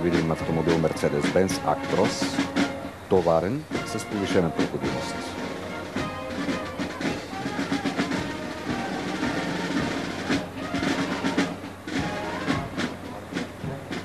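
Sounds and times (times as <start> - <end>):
parade band music: 0.0 - 14.0
snare drum rolls: 0.0 - 14.0.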